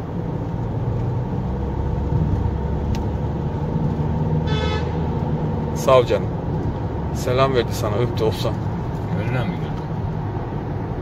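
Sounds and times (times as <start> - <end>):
car driving through tunnel: 0.0 - 11.0.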